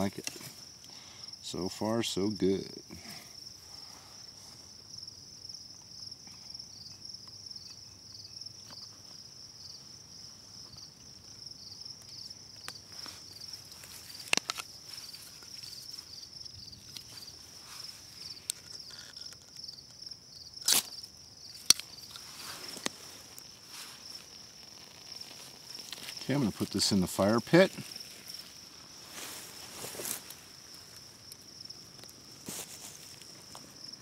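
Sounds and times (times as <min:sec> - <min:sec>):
crickets chirring: 0:00.0 - 0:34.0.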